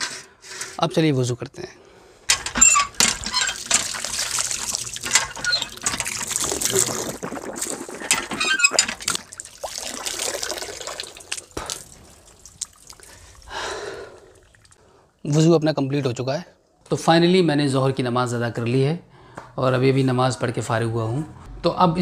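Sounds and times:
metallic clanks: 0:02.3 - 0:06.4
water splashing from hand pump: 0:02.3 - 0:14.8.

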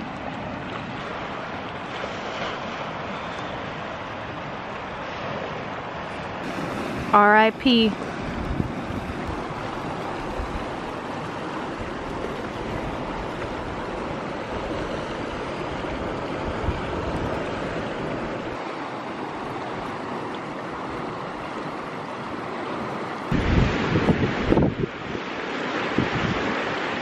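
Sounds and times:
river water rushing over rocks: 0:00.0 - 0:27.0
wind buffeting microphone: 0:07.9 - 0:22.5, 0:23.3 - 0:27.0.

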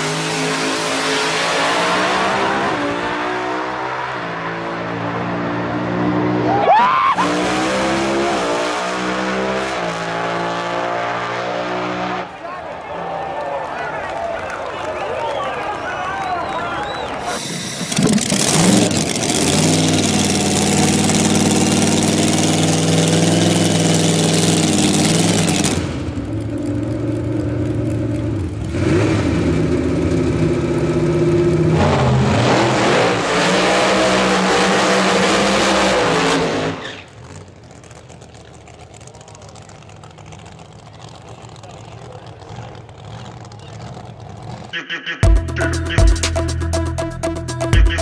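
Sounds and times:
loud engine running: 0:16.8 - 0:47.9.

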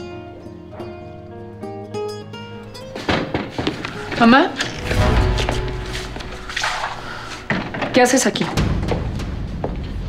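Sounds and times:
plucked guitar music: 0:00.0 - 0:07.8.

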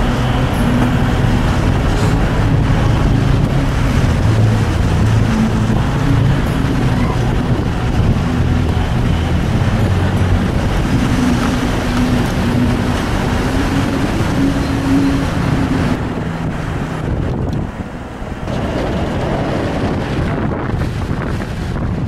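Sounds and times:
car engine hum: 0:00.0 - 0:22.0
road and wind noise: 0:00.0 - 0:22.0.

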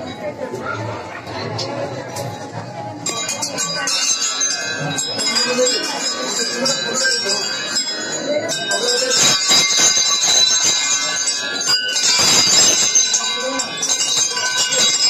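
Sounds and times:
crowd voices: 0:00.0 - 0:15.0
temple bells clanging: 0:01.9 - 0:15.0.

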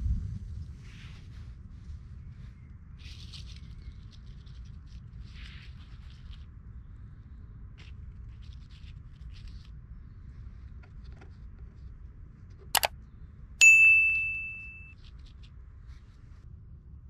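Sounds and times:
mouse clicks: 0:12.7 - 0:12.9
notification bell ding: 0:13.6 - 0:14.9.

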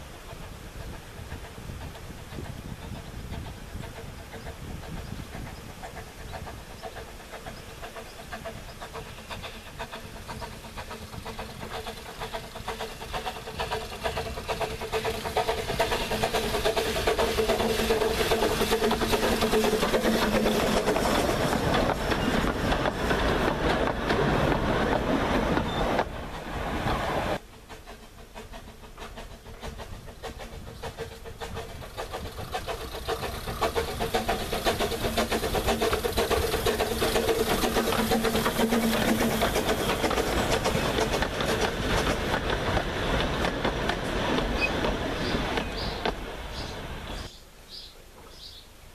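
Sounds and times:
carriages rattling over track: 0:00.0 - 0:47.4
steam locomotive working: 0:00.0 - 0:47.4.

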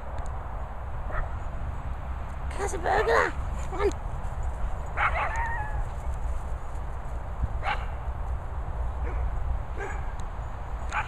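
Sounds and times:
dog barking high yips: 0:05.0 - 0:05.9, 0:09.0 - 0:10.1.

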